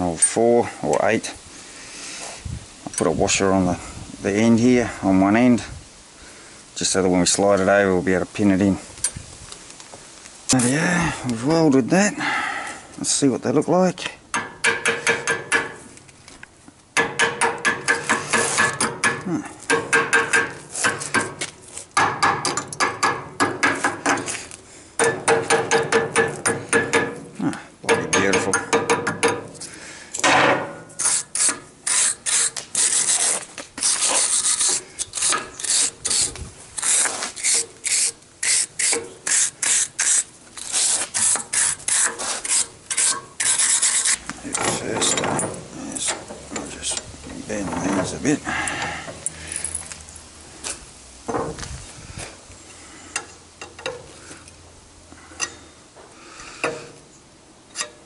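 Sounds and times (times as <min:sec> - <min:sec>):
hammer striking steel: 0:14.3 - 0:15.8, 0:17.0 - 0:21.4, 0:25.0 - 0:27.3, 0:27.9 - 0:29.5.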